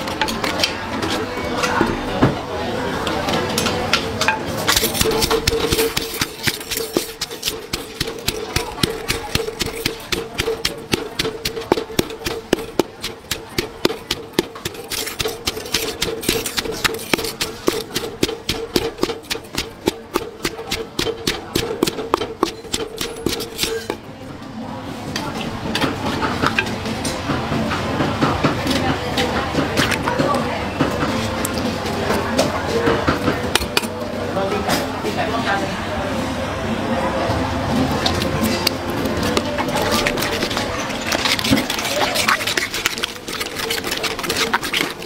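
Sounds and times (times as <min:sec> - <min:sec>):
pestle pounding in a mortar: 0:04.6 - 0:24.0, 0:38.0 - 0:45.0.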